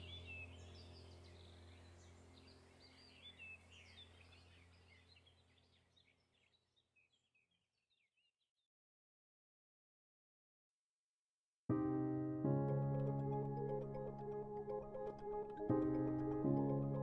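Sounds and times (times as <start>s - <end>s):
low steady hum: 0.0s - 5.4s
faint birds chirping: 0.0s - 8.4s.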